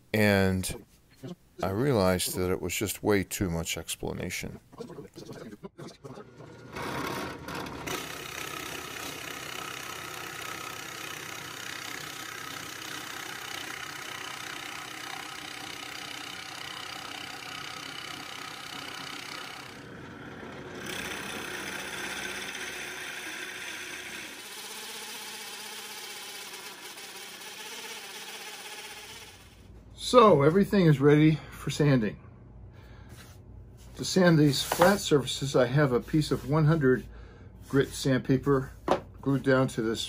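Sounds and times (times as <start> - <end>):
drill press motor hum: 6.3 - 29.7
drill bit rasping wood: 6.7 - 29.6.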